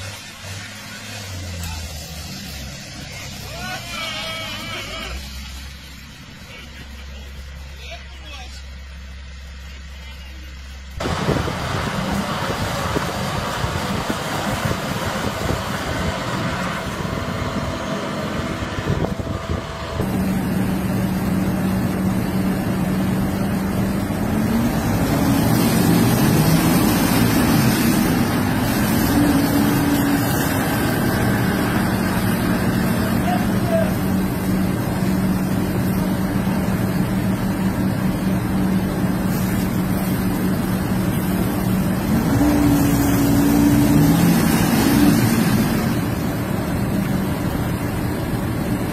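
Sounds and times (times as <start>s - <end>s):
diesel tractor engines under load: 0.0s - 48.9s.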